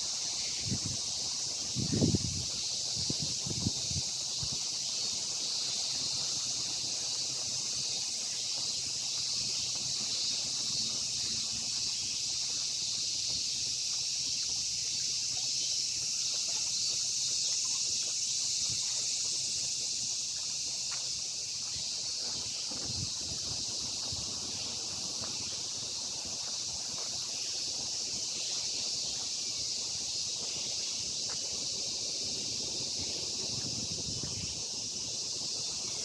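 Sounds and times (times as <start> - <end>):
insects buzzing: 0.0 - 36.0.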